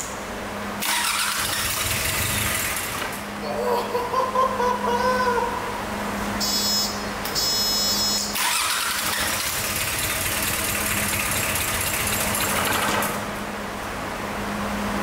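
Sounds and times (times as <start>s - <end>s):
starter motor cranking diesel: 0.8s - 3.2s, 8.4s - 13.3s.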